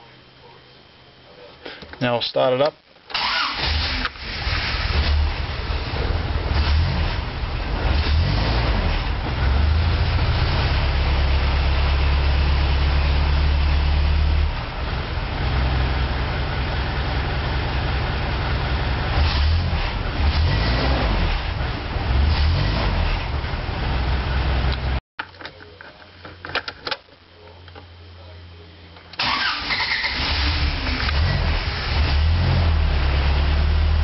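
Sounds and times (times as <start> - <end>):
car engine starting and running: 3.1 - 25.0, 29.2 - 34.0.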